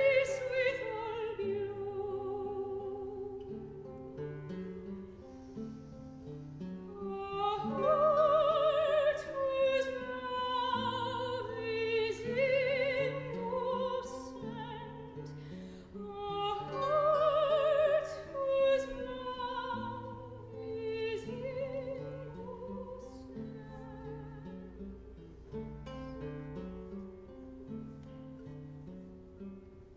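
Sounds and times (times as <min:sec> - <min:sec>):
soprano singing with vibrato: 0:00.0 - 0:04.3, 0:06.6 - 0:25.2
guitar accompaniment: 0:00.0 - 0:29.9.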